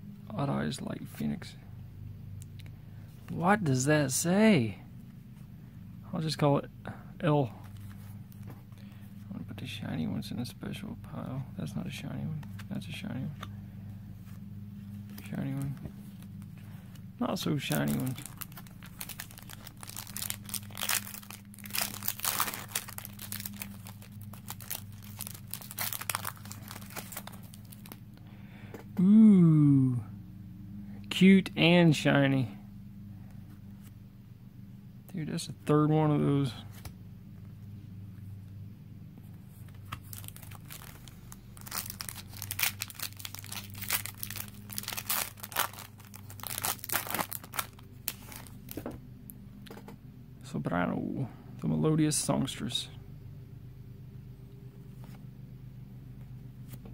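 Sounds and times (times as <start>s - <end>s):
foil pack tearing and crinkling: 17.6s - 28.0s, 40.0s - 48.8s.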